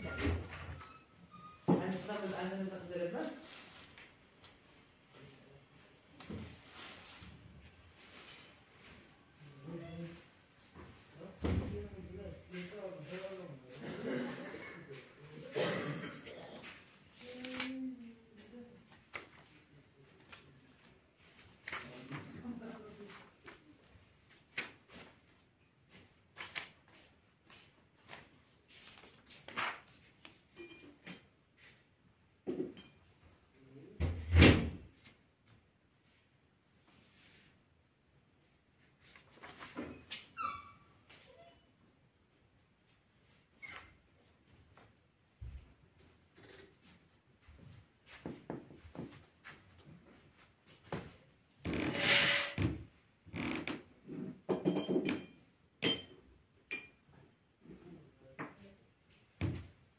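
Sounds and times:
sharp ringing clinks: 55.2 - 56.1, 56.7 - 57.0.

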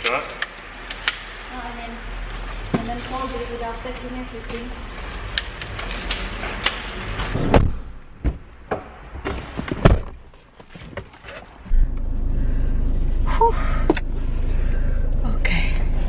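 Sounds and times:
car door thuds: 7.3 - 8.5
car engine starting and rumbling: 9.8 - 16.0.

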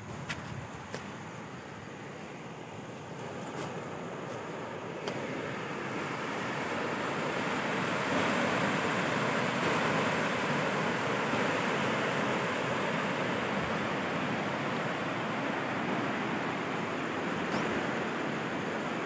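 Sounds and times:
water rushing over dam: 0.9 - 19.0.

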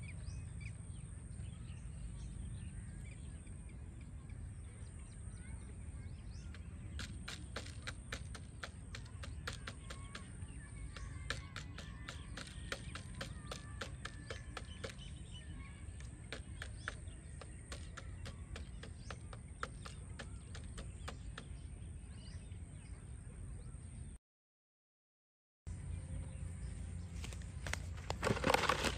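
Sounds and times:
faint bird chirps: 0.0 - 24.2
sharp clicks: 6.5 - 15.2.

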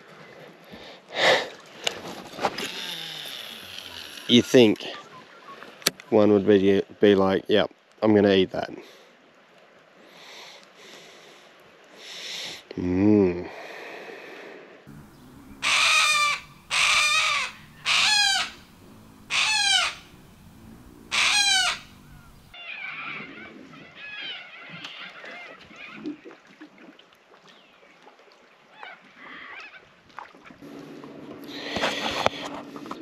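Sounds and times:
low steady hum: 14.9 - 22.6
cockatoo harsh calls: 14.9 - 23.2
faint bird calls: 14.9 - 25.4.

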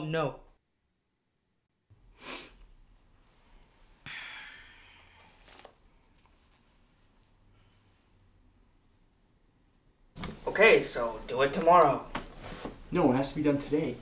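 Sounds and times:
man breathing in and out: 3.5 - 5.6.

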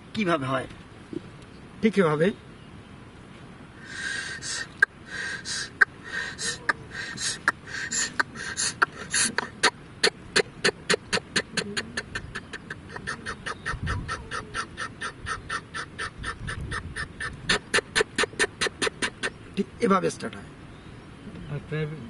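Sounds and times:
man imitating diesel engine by mouth: 3.8 - 19.8.

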